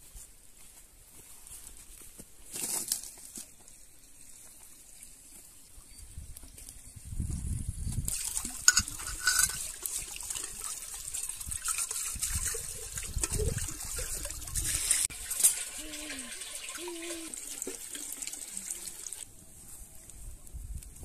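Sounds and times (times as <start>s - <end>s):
water pouring from a spout: 8.0s - 19.3s
water splashing into metal kettle: 8.1s - 19.2s.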